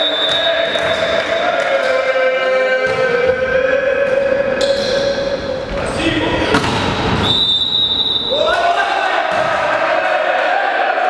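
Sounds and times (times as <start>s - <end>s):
volleyball struck hard: 9.3s - 9.7s.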